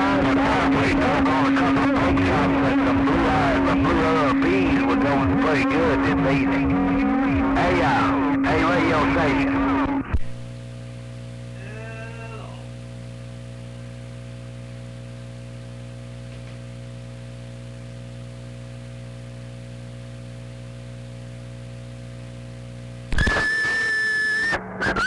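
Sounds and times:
radio warble: 0:00.0 - 0:13.0, 0:23.1 - 0:25.0
radio electrical hum: 0:00.0 - 0:25.0
radio whistle with hiss: 0:23.1 - 0:25.0.

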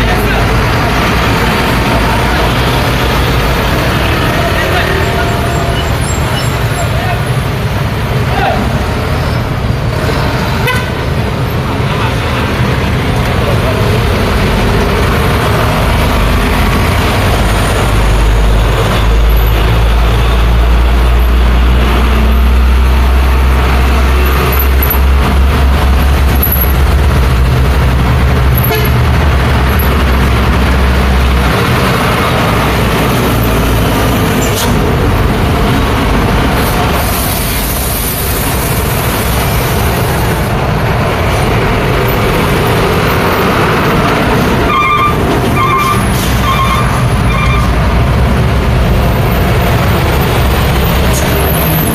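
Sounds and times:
heavy truck engine rumble: 0:00.0 - 0:51.9
road traffic passing: 0:00.0 - 0:51.9
truck air brakes hissing: 0:36.5 - 0:39.2, 0:45.9 - 0:47.2.

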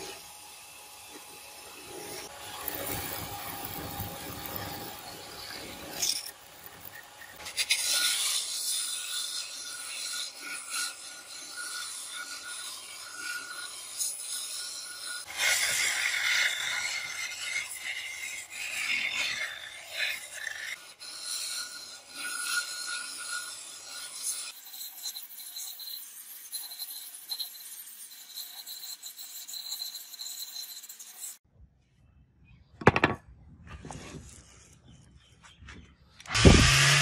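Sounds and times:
sharp knock: 0:32.8 - 0:33.2
belt sander rasping wood: 0:36.3 - 0:37.0.

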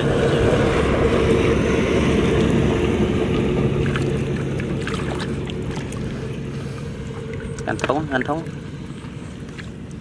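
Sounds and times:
low rumble and hum: 0:00.0 - 0:10.0
water splashes: 0:00.0 - 0:10.0
hands squelching in mud: 0:03.7 - 0:08.1.

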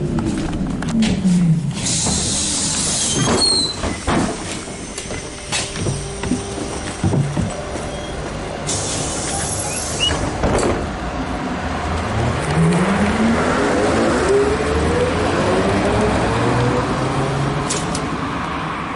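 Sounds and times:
trolleybus motor whine rising: 0:00.0 - 0:10.4, 0:11.0 - 0:18.2
clunk: 0:00.8 - 0:07.9
air hiss: 0:01.8 - 0:05.0, 0:08.6 - 0:10.2.

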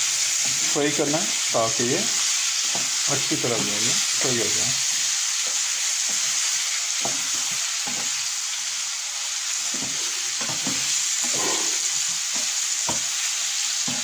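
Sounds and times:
chicken sizzling in oil: 0:00.0 - 0:14.0
spatula scraping pan: 0:09.5 - 0:14.0.

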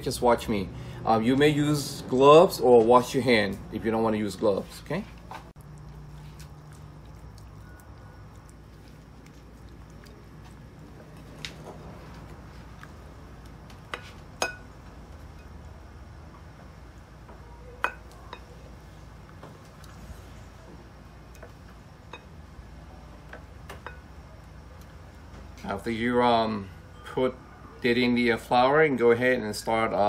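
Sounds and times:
low steady hum: 0:00.0 - 0:30.0
light clinks against bowls: 0:23.8 - 0:24.2.

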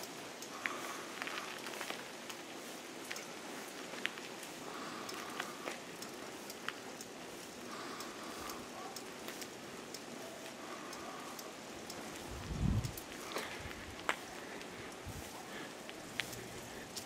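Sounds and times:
small clicks: 0:00.0 - 0:15.1, 0:15.7 - 0:17.0
outdoor hiss: 0:00.0 - 0:17.0
low rumble on microphone: 0:12.3 - 0:13.0.

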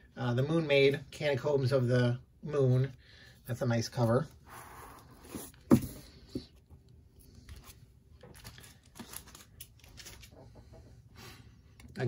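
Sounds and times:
plastic sleeve crinkling: 0:07.4 - 0:10.4.

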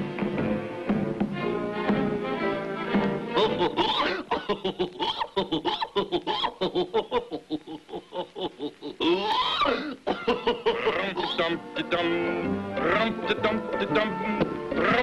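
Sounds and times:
cartoon hyena laughing: 0:03.4 - 0:11.6.

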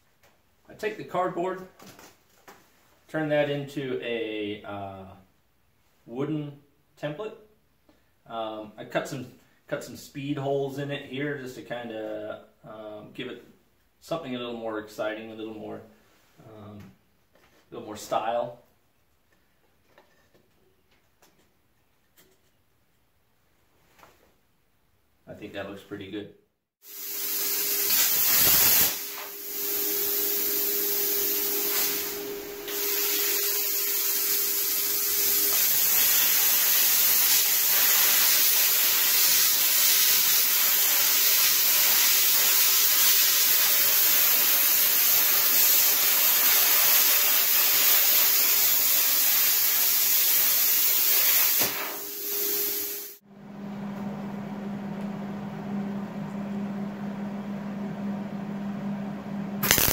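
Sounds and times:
plasma cutter hissing: 0:26.8 - 0:53.2, 0:59.6 - 0:59.9.

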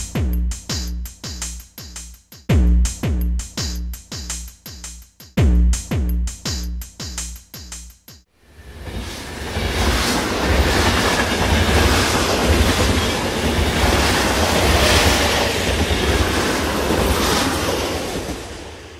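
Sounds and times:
train rumbling on rails: 0:08.4 - 0:18.9.

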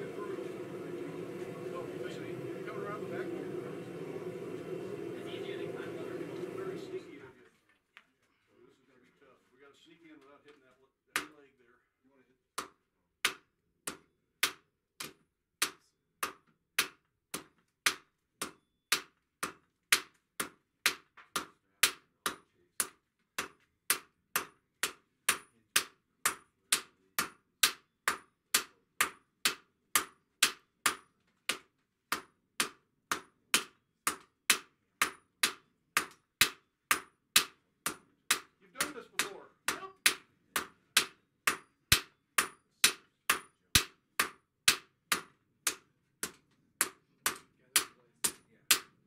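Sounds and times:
hammers striking steel on anvil: 0:12.6 - 0:48.9.

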